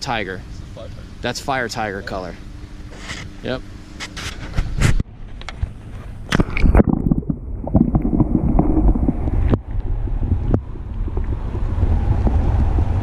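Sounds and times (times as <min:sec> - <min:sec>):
underwater water wash rumble: 0:06.2 - 0:13.0.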